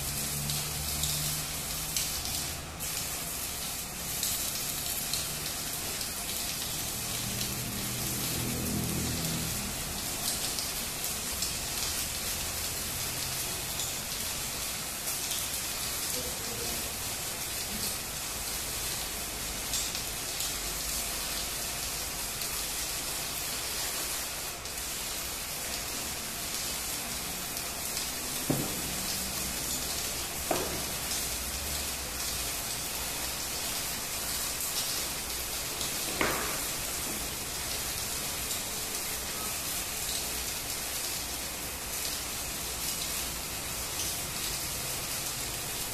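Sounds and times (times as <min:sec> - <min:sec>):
welding arc crackling and sizzling: 0:00.0 - 0:45.9.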